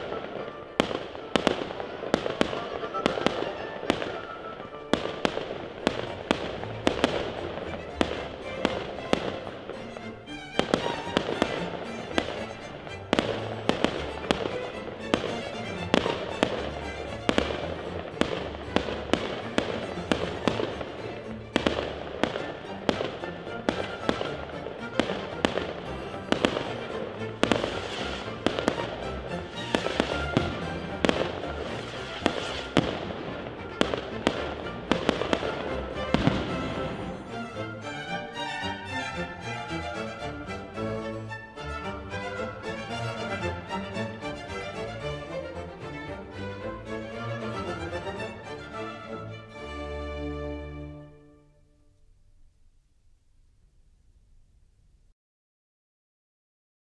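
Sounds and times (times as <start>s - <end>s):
fireworks bangs and crackles: 0.0s - 37.7s
music playing: 0.0s - 52.0s.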